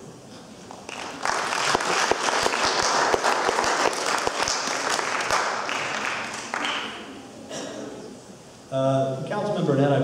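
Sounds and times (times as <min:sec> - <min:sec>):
audience applauding: 0:00.7 - 0:07.1.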